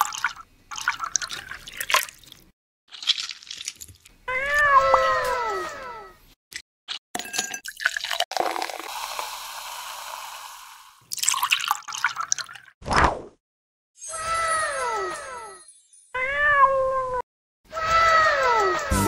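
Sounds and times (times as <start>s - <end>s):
liquid pouring over ice: 0.0s - 4.1s, 7.2s - 12.7s
ice cubes clinking into glass: 7.2s - 9.3s.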